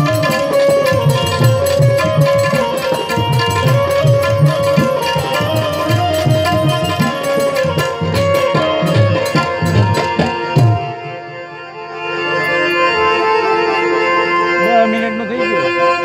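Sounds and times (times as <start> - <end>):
tabla strokes: 0.0 - 11.3
held melody notes: 0.0 - 16.0.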